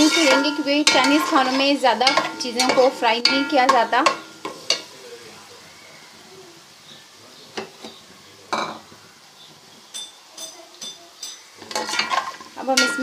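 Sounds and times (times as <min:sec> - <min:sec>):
spoon clinking against pot: 0:00.0 - 0:04.9, 0:09.9 - 0:13.0
paste sizzling in oil: 0:00.0 - 0:13.0.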